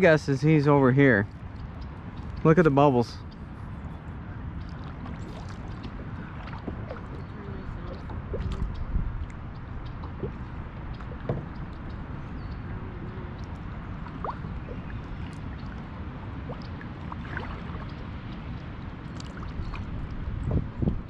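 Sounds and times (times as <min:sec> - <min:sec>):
low steady rumble: 0:00.0 - 0:21.0
water gurgling: 0:04.5 - 0:21.0.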